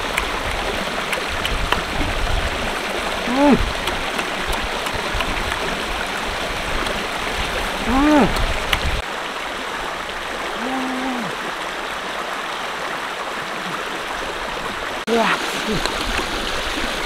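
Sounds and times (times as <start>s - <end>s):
stream rushing over rocks: 0.0s - 17.0s
man humming: 3.2s - 4.0s, 7.8s - 8.5s, 10.6s - 11.4s, 15.1s - 16.0s.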